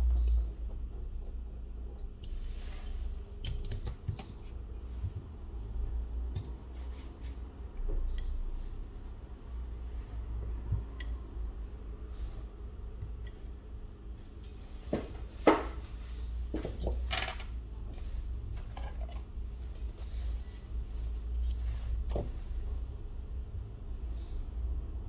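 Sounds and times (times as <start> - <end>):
steady low hum: 0.0 - 25.0
small parts and tools clicking: 3.4 - 4.6.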